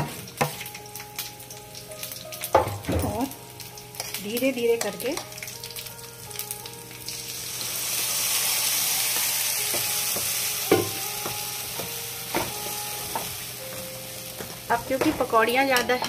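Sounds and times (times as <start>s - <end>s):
batter sizzling in hot oil: 0.0s - 16.0s
metal spoon knocking pan: 9.8s - 11.4s.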